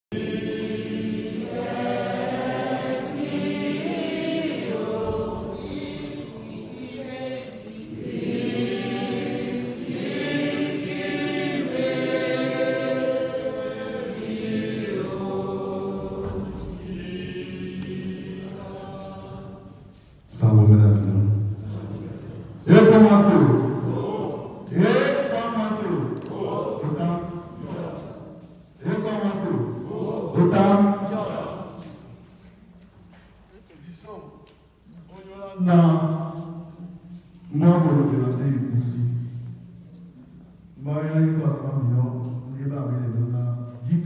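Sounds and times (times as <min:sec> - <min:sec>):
choir singing a hymn: 0:00.1 - 0:32.9.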